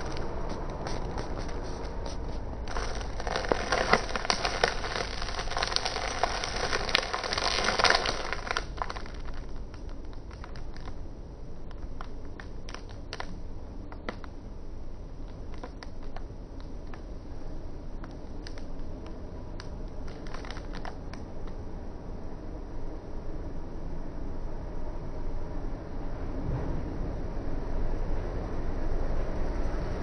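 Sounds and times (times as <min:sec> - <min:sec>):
plastic bag crinkling: 0:00.0 - 0:11.0, 0:11.6 - 0:14.3, 0:15.3 - 0:17.0, 0:18.0 - 0:18.9, 0:19.6 - 0:21.5.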